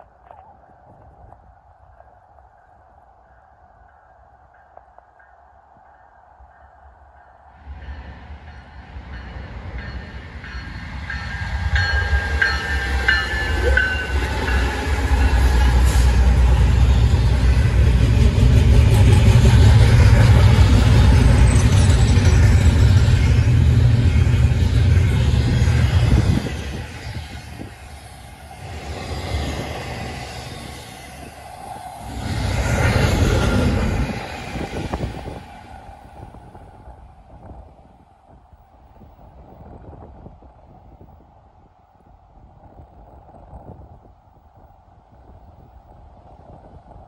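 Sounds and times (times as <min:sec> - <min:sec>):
diesel locomotive rumble: 0:08.8 - 0:36.8.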